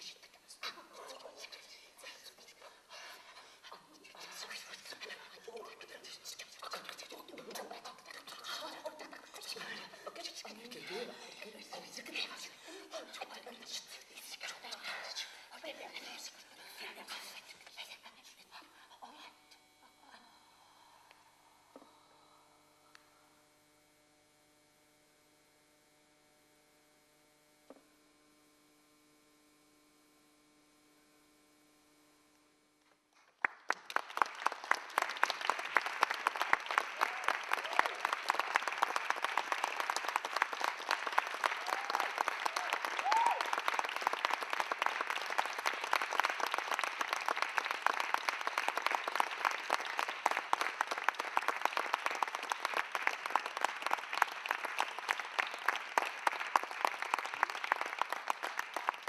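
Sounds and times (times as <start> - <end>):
audience applause: 33.4 - 59.0.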